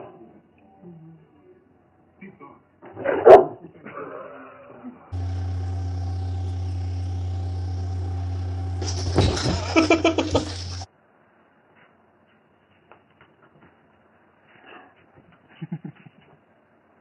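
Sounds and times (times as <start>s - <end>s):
electric motor hum: 5.1s - 10.9s
short loud burst: 5.1s - 10.9s.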